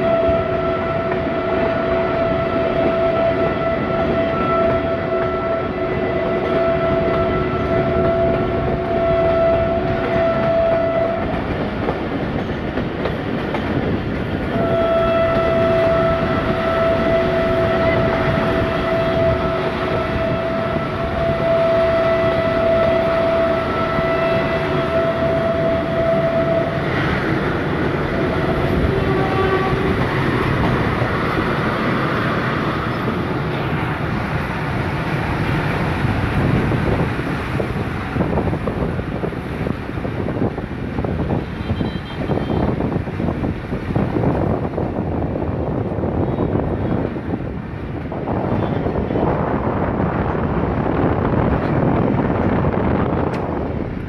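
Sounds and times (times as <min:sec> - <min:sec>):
train horn blasts: 0:00.0 - 0:11.6, 0:14.4 - 0:34.1, 0:41.2 - 0:43.0, 0:46.0 - 0:47.1
moving train rumble and rattle: 0:00.0 - 0:54.0.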